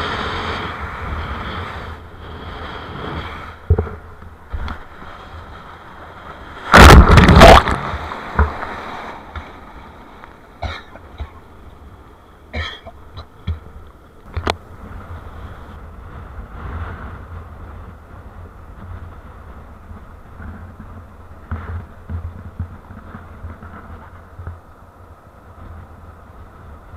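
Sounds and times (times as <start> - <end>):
wind buffeting microphone: 0.0 - 26.9
loud double rush: 6.6 - 8.0.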